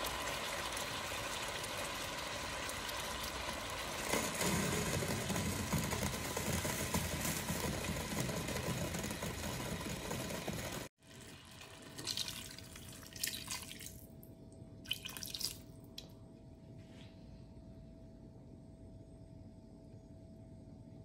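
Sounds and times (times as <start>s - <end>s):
liquid pouring into a pot: 0.0s - 14.1s, 14.8s - 15.7s
faint steady hum: 11.1s - 21.0s.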